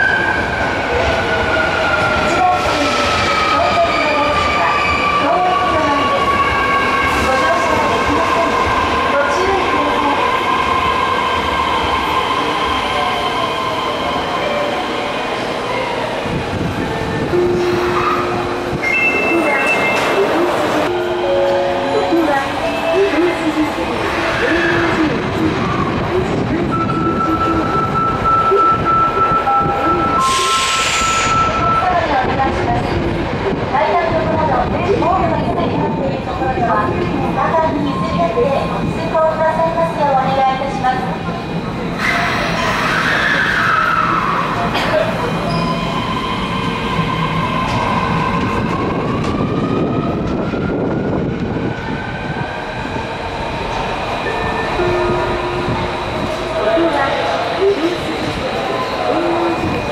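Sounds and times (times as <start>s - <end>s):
subway train running: 0.0s - 59.9s
subway traction motor whine: 34.2s - 59.9s.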